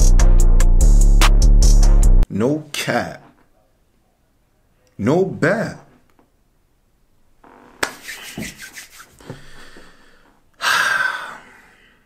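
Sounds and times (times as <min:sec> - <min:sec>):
man breathing: 0:09.1 - 0:12.0.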